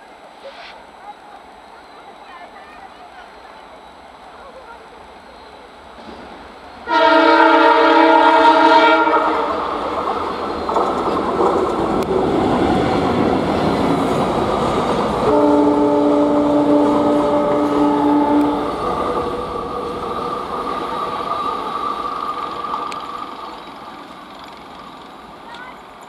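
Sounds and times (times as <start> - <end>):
train passing on rails: 0.0 - 26.0
locomotive horn blasts: 6.9 - 9.7, 15.2 - 18.8.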